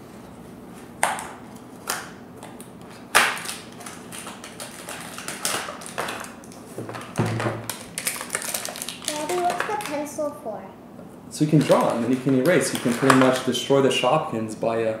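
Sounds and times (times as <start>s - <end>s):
plastic packaging crinkling: 2.9s - 10.2s, 11.4s - 13.6s.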